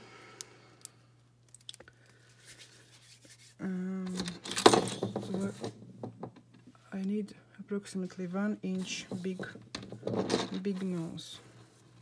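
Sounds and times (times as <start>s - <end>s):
plastic tools clattering on table: 4.1s - 6.4s, 8.9s - 10.9s.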